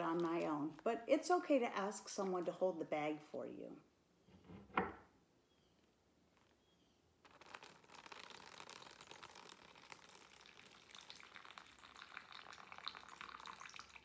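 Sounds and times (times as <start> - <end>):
water trickling into plastic bag: 0.0 - 1.0, 7.3 - 14.0.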